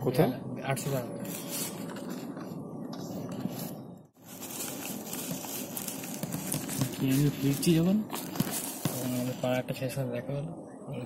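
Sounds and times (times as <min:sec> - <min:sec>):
bait rustling and crunching: 0:04.2 - 0:09.3.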